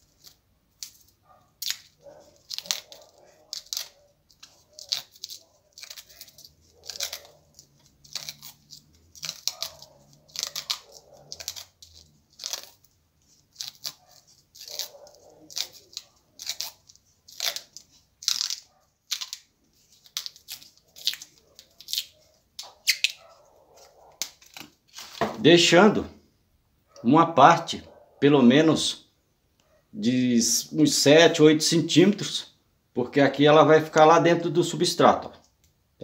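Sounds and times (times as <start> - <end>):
plastic strip crinkling: 0.0 - 25.5.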